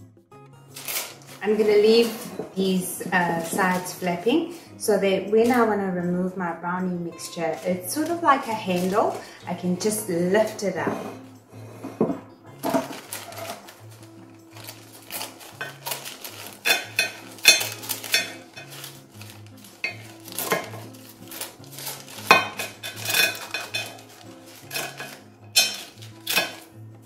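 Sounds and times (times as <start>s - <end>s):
paper crackling: 0.7s - 2.6s, 7.4s - 9.4s, 12.6s - 26.7s
scissors snipping paper: 12.9s - 26.7s.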